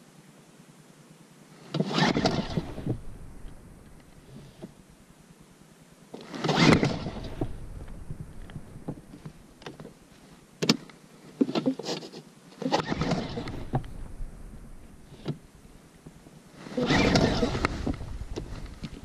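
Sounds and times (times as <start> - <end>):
outboard engine turning over: 1.8 - 4.6, 6.3 - 9.6, 12.6 - 15.8, 16.7 - 19.0
starter rope yanked: 16.8 - 18.9.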